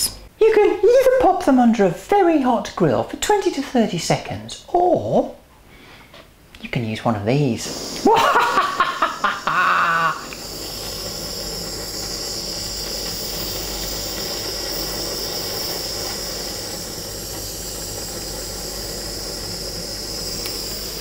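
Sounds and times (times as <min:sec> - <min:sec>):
blowtorch hissing: 0:07.5 - 0:21.0
person laughing: 0:08.0 - 0:10.3.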